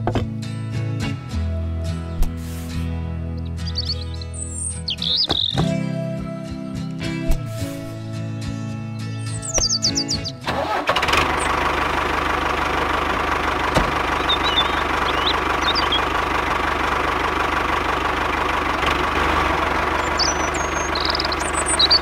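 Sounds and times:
tractor engine idling: 0:00.0 - 0:06.1, 0:09.1 - 0:22.0.

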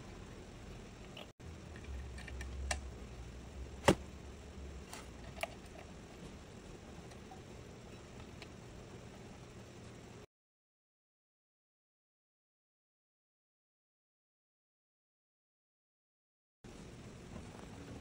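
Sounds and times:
faint low hum: 0:00.0 - 0:10.3, 0:16.7 - 0:18.0.

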